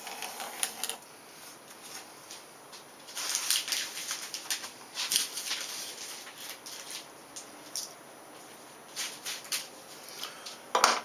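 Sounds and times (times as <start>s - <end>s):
plastic contact paper rustling: 3.0s - 7.9s.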